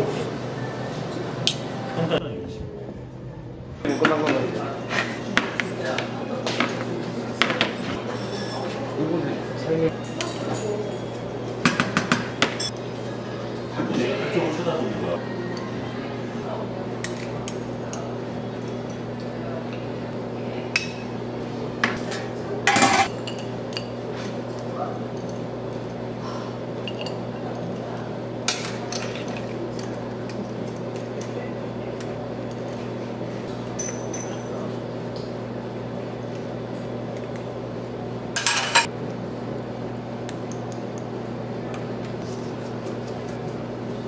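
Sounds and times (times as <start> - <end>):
metal tongs and lids clattering: 22.0 - 24.3, 38.4 - 38.9.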